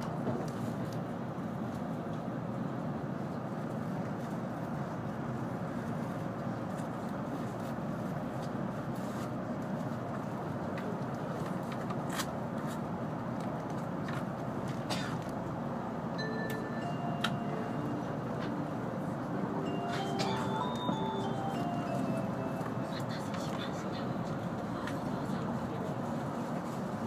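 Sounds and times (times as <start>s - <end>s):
train cabin running noise: 0.0s - 27.0s.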